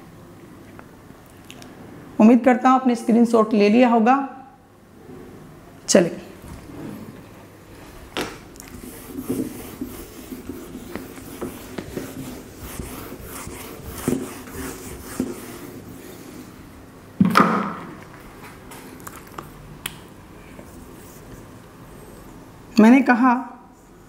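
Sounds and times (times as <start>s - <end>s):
duster rubbing a whiteboard: 7.8s - 16.7s, 20.5s - 22.5s.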